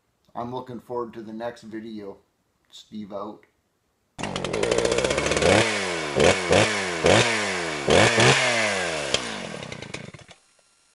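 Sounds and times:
small gasoline engine revving: 4.2s - 11.0s.

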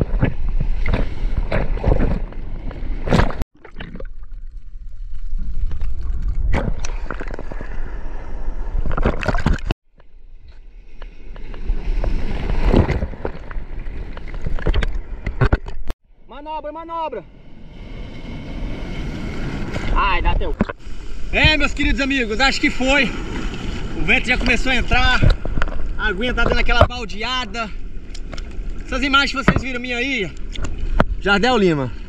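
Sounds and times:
water splashing against camera: 8.8s - 9.7s
waves breaking: 10.8s - 15.9s, 17.2s - 32.0s.

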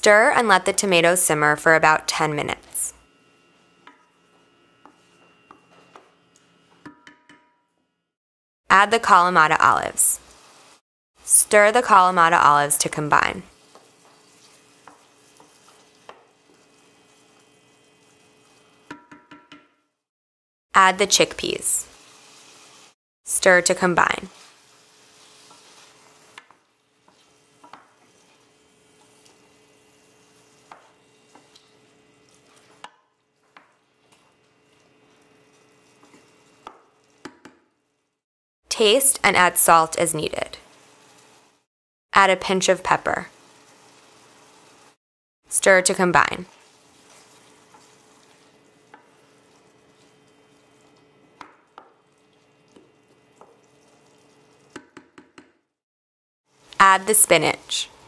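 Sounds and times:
wooden spoon stirring in pan: 3.6s - 6.3s, 13.2s - 18.9s, 24.3s - 37.3s, 46.5s - 54.6s
spoon knocking against pan: 6.8s - 7.6s, 18.9s - 19.7s
sauce simmering sizzle: 10.2s - 10.8s, 13.5s - 18.9s, 21.9s - 23.0s, 24.3s - 37.2s, 40.6s - 41.7s, 43.3s - 45.0s, 46.5s - 54.8s.

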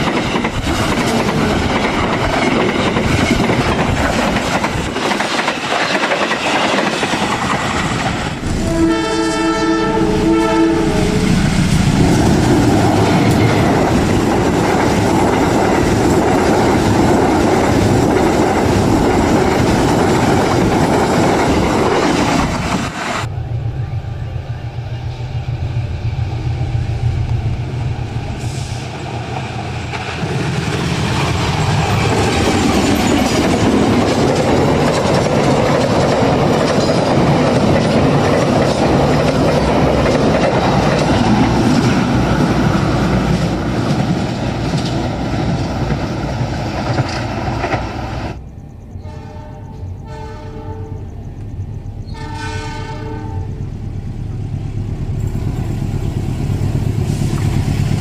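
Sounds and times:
locomotive engine rumbling: 0.0s - 58.0s
train coaches rushing past: 0.0s - 58.0s
locomotive horn blasts: 8.4s - 11.5s, 49.0s - 51.2s, 52.1s - 53.7s.

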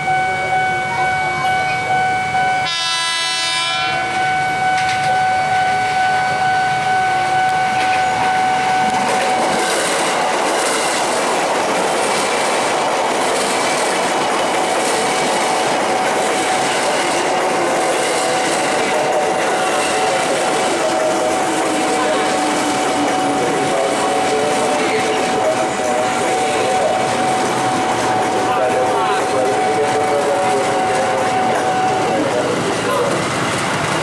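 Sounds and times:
level-crossing warning signal ringing: 0.0s - 34.0s
train horn: 1.4s - 9.4s
train wheels clattering over rails: 7.7s - 34.0s.

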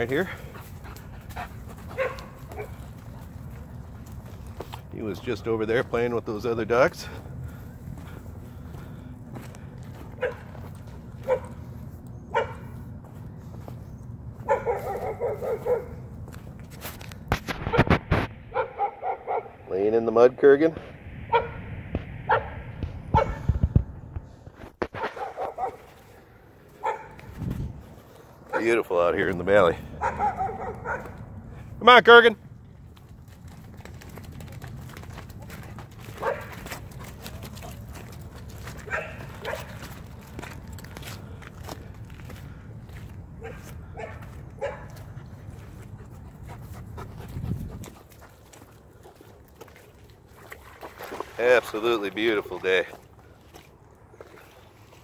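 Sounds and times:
dog panting: 0.1s - 3.7s, 43.4s - 49.6s
dog barking: 1.9s - 2.8s, 10.2s - 10.5s, 11.2s - 11.6s, 12.3s - 12.7s, 14.4s - 16.0s, 18.5s - 19.6s, 21.3s - 21.6s, 22.3s - 23.4s, 25.0s - 25.9s, 26.8s - 27.2s, 30.0s - 31.2s, 36.2s - 36.5s, 38.8s - 39.8s, 43.4s - 44.9s
low rumble: 20.7s - 24.6s.

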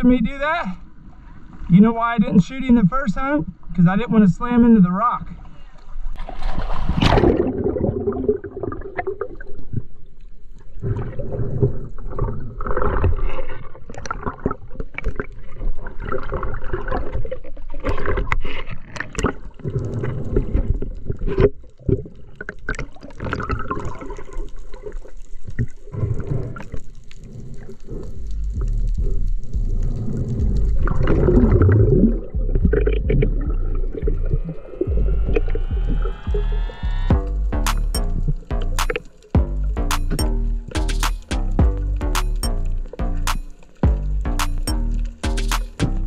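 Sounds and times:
muffled underwater rushing and bubbling: 6.0s - 9.9s, 29.0s - 36.9s
water splashing: 6.2s - 9.6s.

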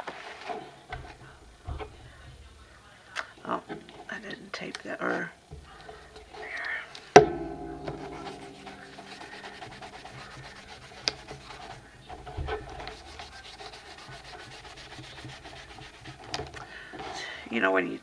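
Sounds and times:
sharp ringing knock: 7.2s - 13.6s
paper rubbing against paper: 8.1s - 17.2s.

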